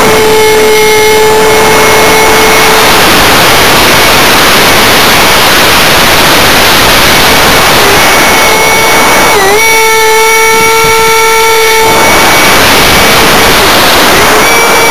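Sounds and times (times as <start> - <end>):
motor whine: 0.0 - 14.9
wind rush over microphone: 0.0 - 14.9.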